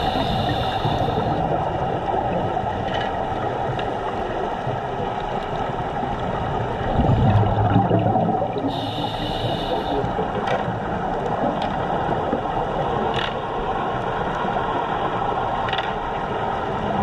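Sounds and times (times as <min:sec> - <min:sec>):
muffled underwater rushing hiss: 0:00.0 - 0:02.4, 0:05.5 - 0:11.4
low bubbling rumble: 0:00.0 - 0:13.1.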